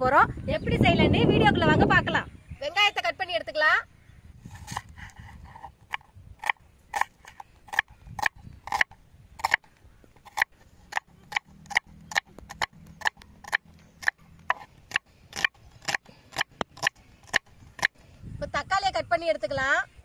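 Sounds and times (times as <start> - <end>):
knife chopping onion on wooden board: 10.2 - 17.9.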